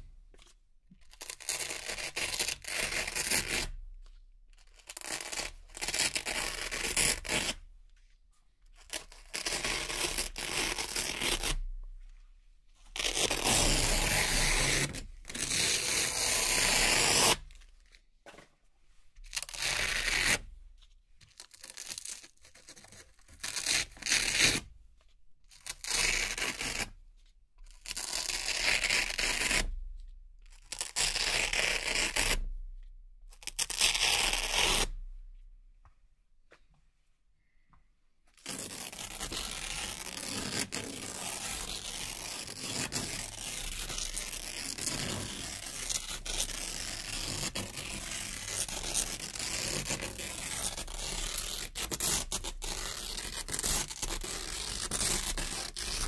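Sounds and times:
velcro strips ripping: 0:01.1 - 0:03.7, 0:04.7 - 0:07.6, 0:08.8 - 0:11.7, 0:13.0 - 0:17.5, 0:19.2 - 0:20.4, 0:21.4 - 0:24.6, 0:25.5 - 0:26.9, 0:27.7 - 0:29.7, 0:30.5 - 0:32.5, 0:33.3 - 0:35.0, 0:38.4 - 0:56.0.

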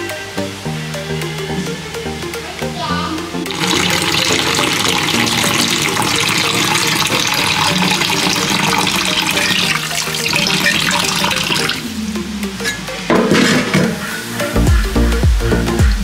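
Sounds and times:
tap water running into bowl: 0:03.5 - 0:11.8.

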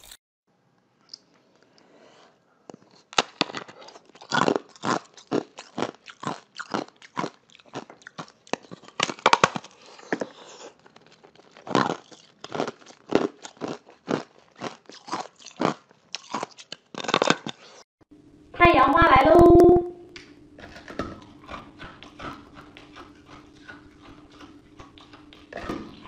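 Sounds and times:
ice crunched and chewed: 0:02.7 - 0:17.8, 0:20.6 - 0:26.0.

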